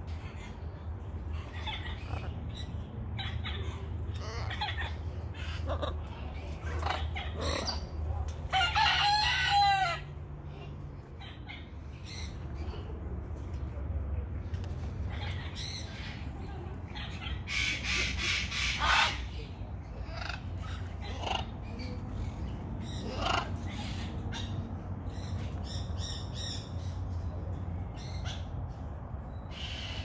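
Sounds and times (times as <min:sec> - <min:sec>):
parrots squawking: 0:01.4 - 0:10.0, 0:17.0 - 0:24.6.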